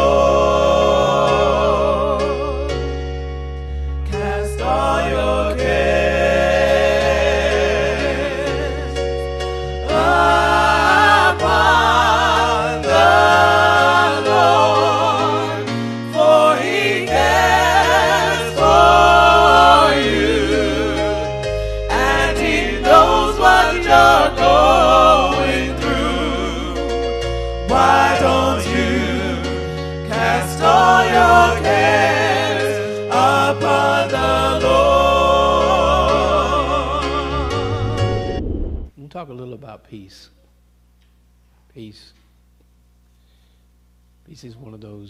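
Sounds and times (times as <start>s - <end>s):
voices singing with vibrato: 0.0s - 2.9s, 4.1s - 9.0s, 9.8s - 27.0s, 27.6s - 38.3s
bass notes: 0.0s - 32.1s, 34.2s - 39.0s
keyboard chords: 0.0s - 38.9s.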